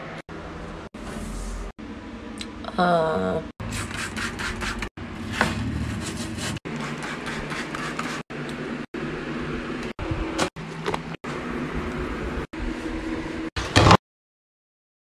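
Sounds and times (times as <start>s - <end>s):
hands scrubbing surfaces: 5.6s - 8.3s.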